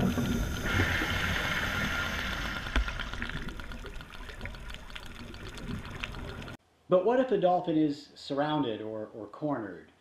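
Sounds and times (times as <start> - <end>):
underwater hiss: 0.0 - 3.7
dolphin echolocation clicks: 2.2 - 6.6.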